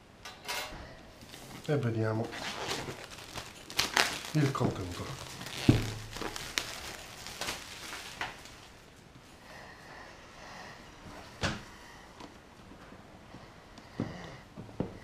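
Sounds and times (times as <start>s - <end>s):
plastic film crinkling: 1.2s - 9.1s.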